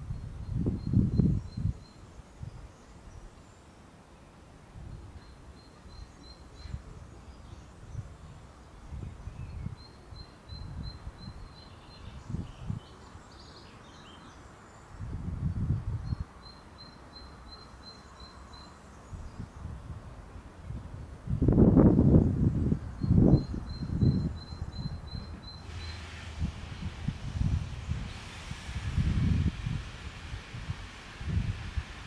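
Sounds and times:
wind buffeting microphone: 0.0s - 2.8s, 6.6s - 9.9s, 10.5s - 13.0s, 15.0s - 16.3s, 19.0s - 32.0s
bird chirps: 23.0s - 26.1s.

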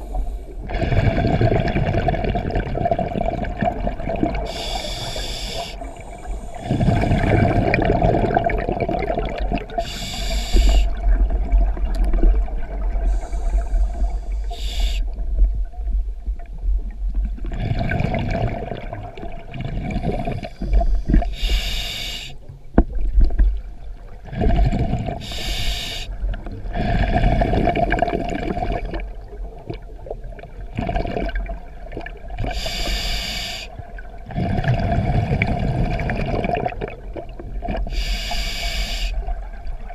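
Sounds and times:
gurgling exhaled bubbles: 0.0s - 14.7s, 17.3s - 21.4s, 23.0s - 25.4s, 26.2s - 32.8s, 34.1s - 38.0s
regulator hissing inhales: 4.5s - 7.1s, 9.8s - 11.0s, 13.0s - 15.1s, 20.4s - 22.4s, 25.2s - 26.2s, 32.6s - 33.8s, 37.9s - 39.2s.

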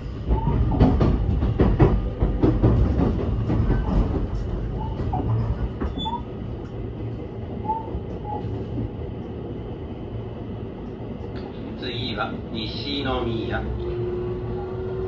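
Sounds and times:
train wheels rumbling on rail: 0.0s - 15.0s
faint high squeaks: 3.7s - 6.3s.

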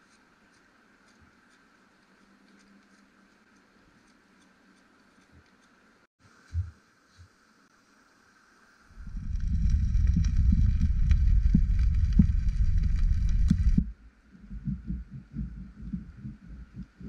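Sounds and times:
campfire crackling: 8.9s - 14.0s.

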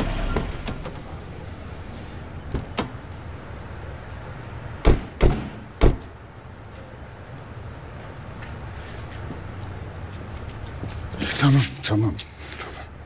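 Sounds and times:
car doors slamming: 4.8s - 6.2s.

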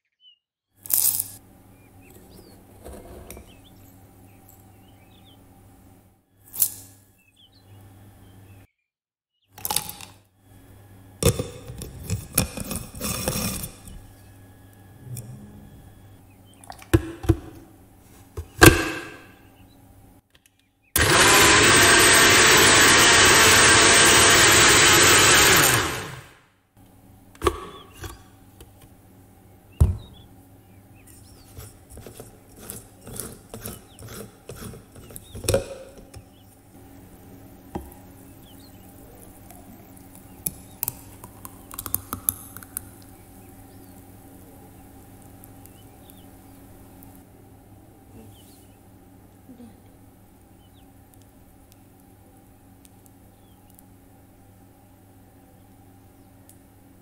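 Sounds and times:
blender motor running: 18.6s - 19.2s, 21.0s - 26.4s.

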